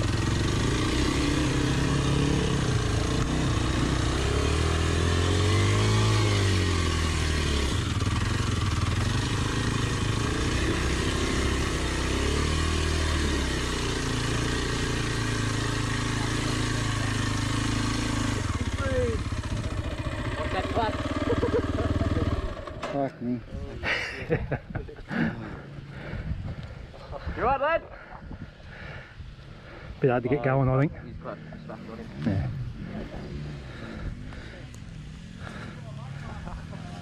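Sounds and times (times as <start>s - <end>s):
dirt bike engine revving: 0.0s - 23.1s, 30.5s - 37.0s.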